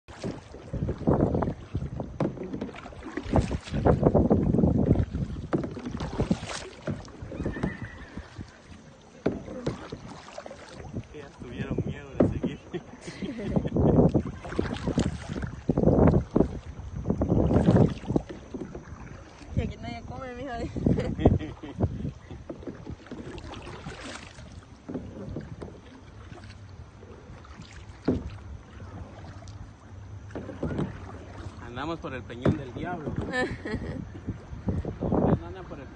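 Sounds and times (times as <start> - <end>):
paddle splashing in river water: 0.0 - 35.9
wind rumbling on microphone: 0.1 - 29.6, 30.2 - 35.9.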